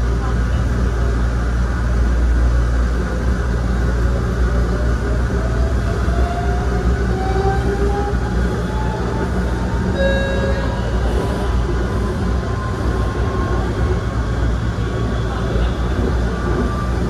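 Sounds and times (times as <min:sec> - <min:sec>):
train wheels rumbling on rails: 0:00.0 - 0:17.0
short tone: 0:09.8 - 0:11.3.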